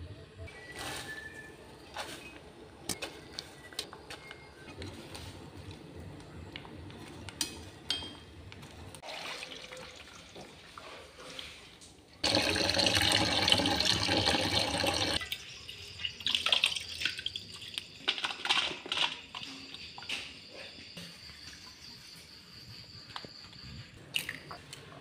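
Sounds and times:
tap water running into colander: 9.0s - 10.9s, 12.2s - 18.3s.

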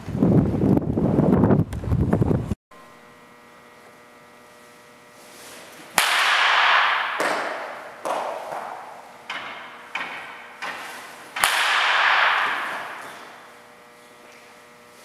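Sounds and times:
wind noise: 0.0s - 2.6s
low steady hum: 1.5s - 15.0s
bat hitting ball: 5.9s - 13.5s.

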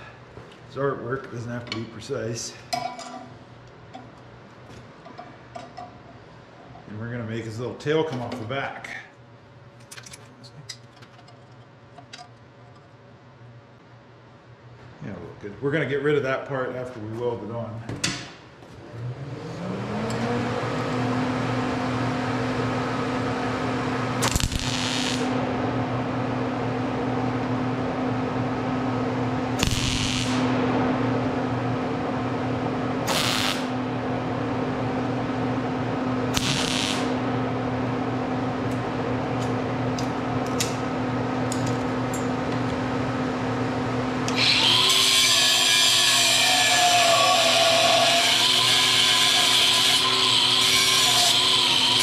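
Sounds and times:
welder hum: 18.9s - 52.0s
welder crackling: 24.2s - 25.4s, 29.6s - 30.5s, 33.1s - 33.7s, 36.3s - 37.2s
angle grinder grinding: 36.4s - 37.2s, 44.3s - 52.0s.

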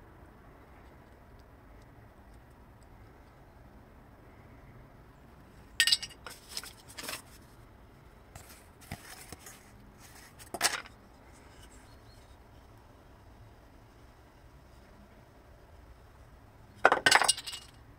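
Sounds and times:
wooden board handled: 8.4s - 11.7s.

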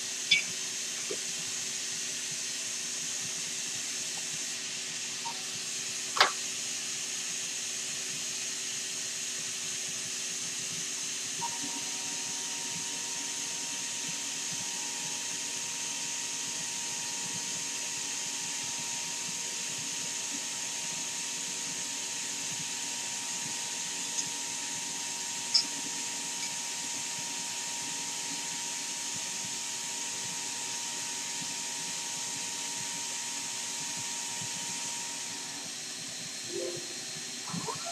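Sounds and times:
vacuum pump hissing and humming: 0.0s - 37.9s
steady higher tone: 36.5s - 37.8s.

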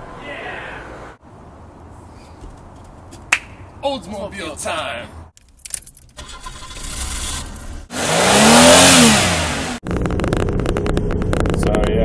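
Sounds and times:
car engine starting: 6.1s - 12.0s
car engine revving: 6.2s - 12.0s.

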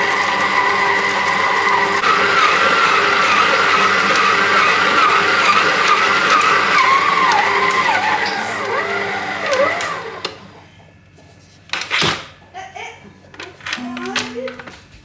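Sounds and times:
stand mixer motor whine: 0.0s - 10.6s.

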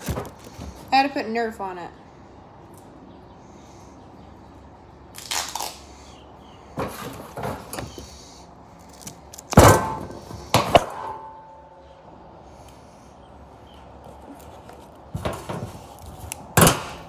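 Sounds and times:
duct tape ripping off roll: 5.1s - 6.0s.

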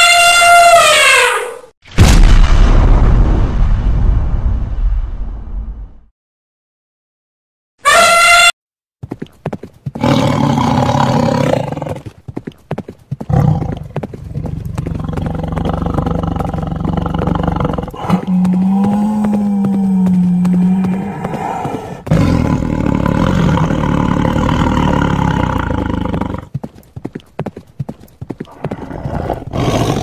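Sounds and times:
short high animal call: 7.8s - 8.5s
clicks like hoofbeats: 9.0s - 10.1s, 11.7s - 22.4s, 25.6s - 30.0s
tiger roaring: 10.0s - 12.0s, 13.3s - 26.5s, 28.5s - 30.0s
low growl: 13.4s - 26.5s.

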